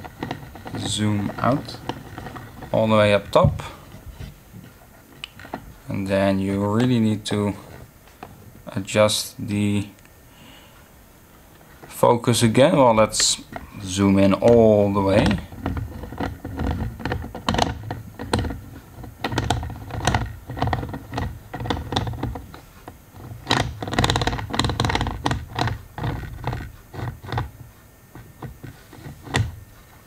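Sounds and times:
plastic clicks and knocks: 0:00.0 - 0:03.8, 0:14.3 - 0:22.6, 0:23.2 - 0:29.6.

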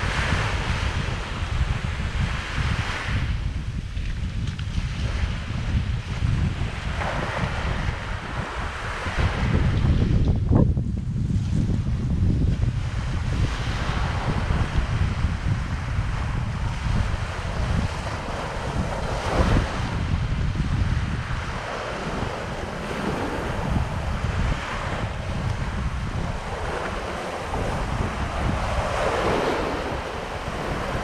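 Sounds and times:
wind rumbling on microphone: 0:00.0 - 0:31.0
small waves breaking on sand: 0:04.7 - 0:09.9, 0:12.8 - 0:31.0.

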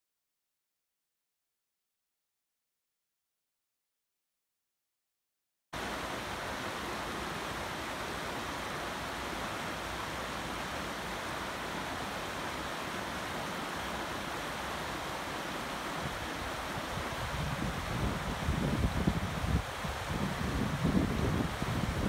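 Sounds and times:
river rushing over rocks: 0:05.8 - 0:22.0.

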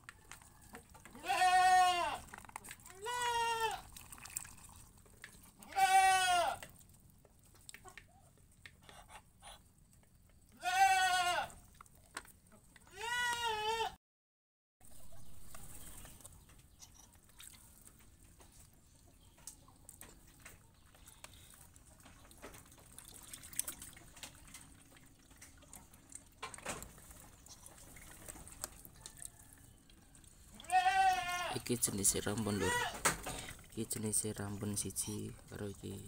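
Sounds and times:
birds dabbling and pecking: 0:00.0 - 0:10.6, 0:11.5 - 0:12.9, 0:14.9 - 0:36.0
wavering bleat-like call: 0:01.2 - 0:02.2, 0:03.0 - 0:03.8, 0:05.6 - 0:06.6, 0:10.6 - 0:11.6, 0:12.9 - 0:14.0, 0:30.5 - 0:31.6
chickens clucking softly: 0:07.5 - 0:09.7.

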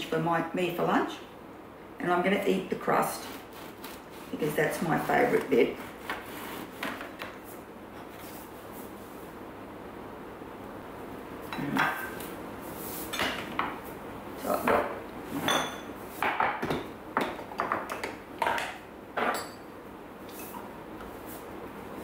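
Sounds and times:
dishes clattering: 0:14.6 - 0:19.7.

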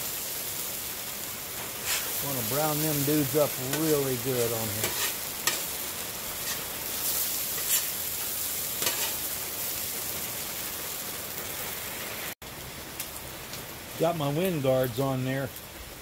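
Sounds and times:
hash browns sizzling on griddle: 0:00.0 - 0:16.0
metal spatula scraping steel: 0:01.8 - 0:03.1, 0:03.7 - 0:04.0, 0:04.6 - 0:05.8, 0:06.4 - 0:08.0, 0:08.8 - 0:09.3.

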